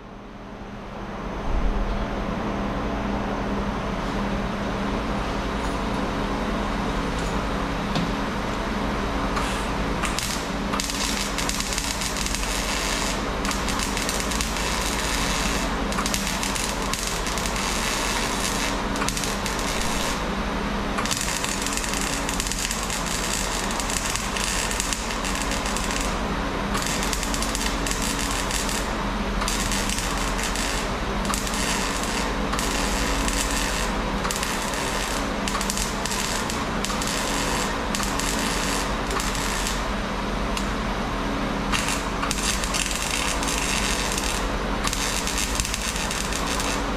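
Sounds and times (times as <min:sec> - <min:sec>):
steady low hum: 0:00.0 - 0:46.9
welder crackling: 0:09.4 - 0:20.3, 0:20.9 - 0:39.9, 0:40.5 - 0:40.8, 0:41.7 - 0:46.9.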